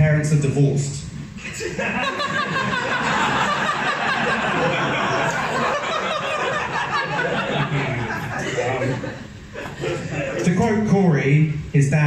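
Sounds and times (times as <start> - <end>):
audience laughing: 1.4 - 10.4.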